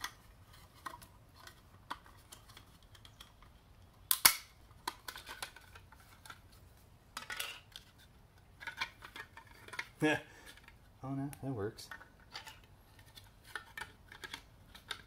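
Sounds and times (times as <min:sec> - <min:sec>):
plastic housing clicking against metal: 0:00.8 - 0:06.4.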